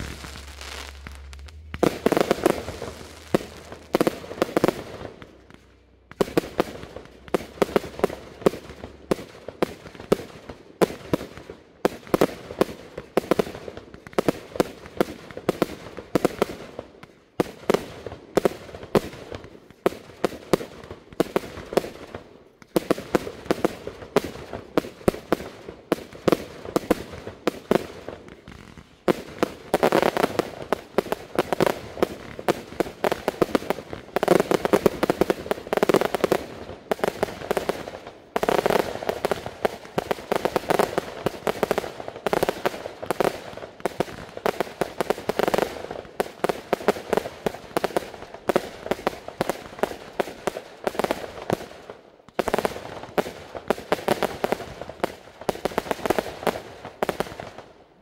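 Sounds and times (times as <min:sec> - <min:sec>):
fireworks banging: 0:00.0 - 0:11.3, 0:17.5 - 0:50.0.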